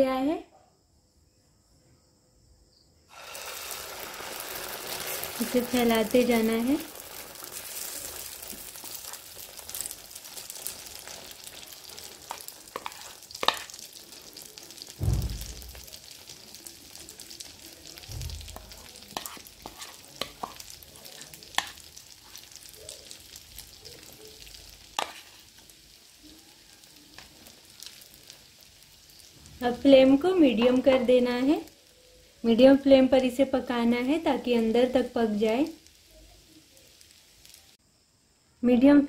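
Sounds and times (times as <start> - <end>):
batter sizzling in hot oil: 3.1 - 38.1
utensils clicking and scraping pan: 12.1 - 13.8, 18.6 - 22.4.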